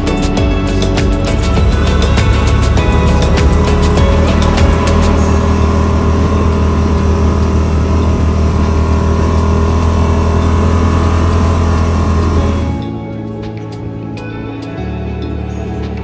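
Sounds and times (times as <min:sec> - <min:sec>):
utility vehicle engine droning: 0:00.0 - 0:16.0
rapid ticking: 0:00.2 - 0:08.3.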